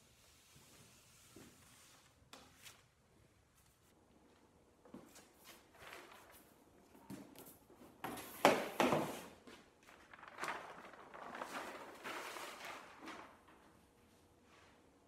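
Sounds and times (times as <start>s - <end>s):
paper rustling and crinkling: 5.3s - 6.8s, 9.6s - 14.0s.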